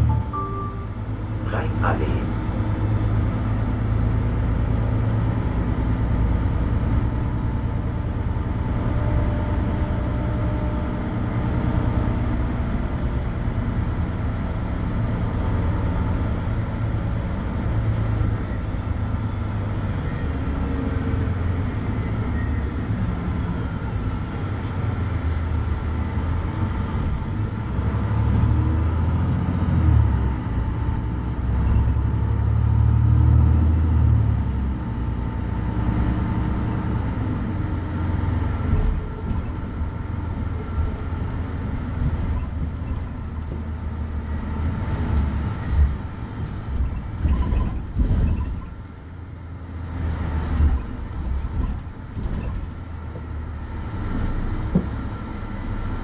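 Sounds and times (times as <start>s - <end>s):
diesel bus engine idling: 0.0s - 28.0s, 36.7s - 47.2s.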